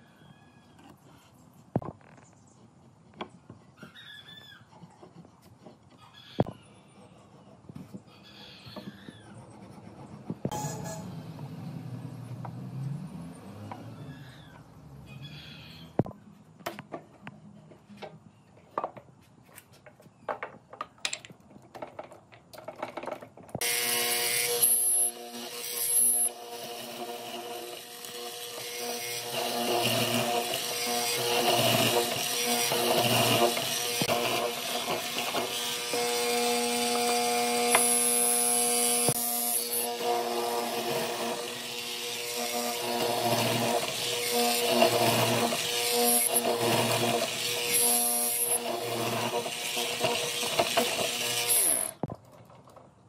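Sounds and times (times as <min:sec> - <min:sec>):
mortiser motor humming: 0:23.6 - 0:52.1.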